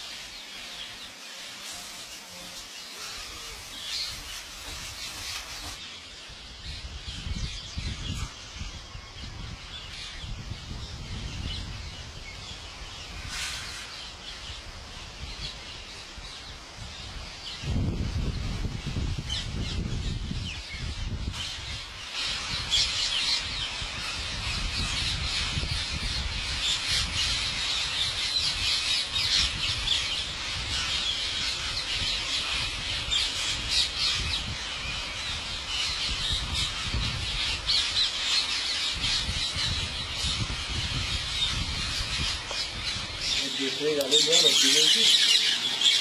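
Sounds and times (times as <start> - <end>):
parakeets squawking: 36.3 - 46.0.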